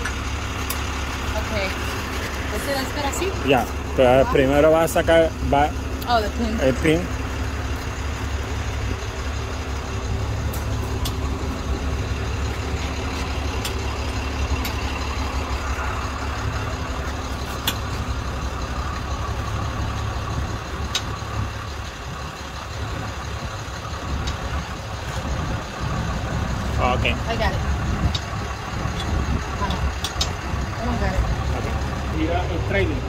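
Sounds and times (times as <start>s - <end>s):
tow truck engine idling: 0.0s - 33.0s.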